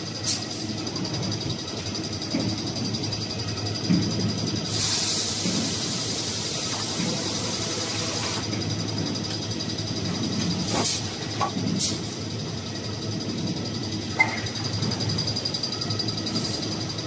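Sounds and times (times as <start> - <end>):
loud hiss: 4.7 - 8.5.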